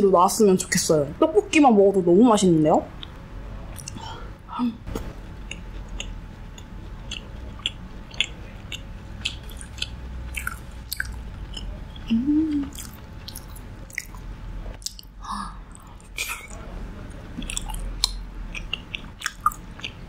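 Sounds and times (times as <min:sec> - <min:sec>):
low hum: 0:00.0 - 0:20.0
close chewing with mouth clicks: 0:05.3 - 0:14.2, 0:14.8 - 0:16.6, 0:17.4 - 0:20.0.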